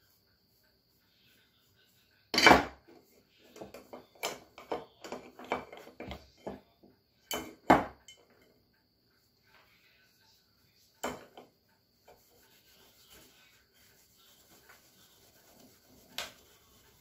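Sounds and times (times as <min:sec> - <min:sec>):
cloth rubbing metal: 0:12.0 - 0:17.0.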